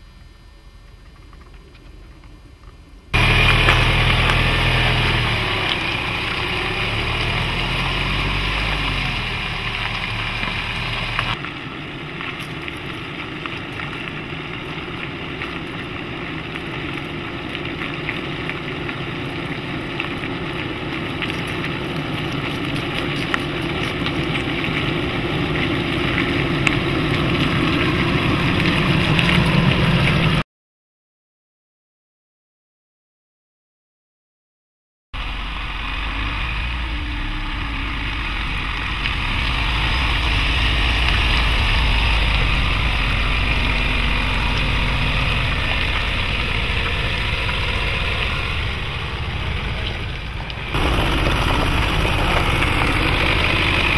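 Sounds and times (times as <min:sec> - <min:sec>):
diesel engine at low revs: 0:02.0 - 0:11.4, 0:35.2 - 0:53.9.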